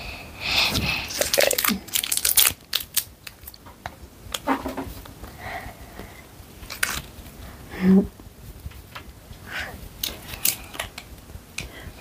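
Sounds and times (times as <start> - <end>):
plastic packet crinkling and tearing: 1.1 - 3.6, 6.6 - 7.2, 10.0 - 11.0.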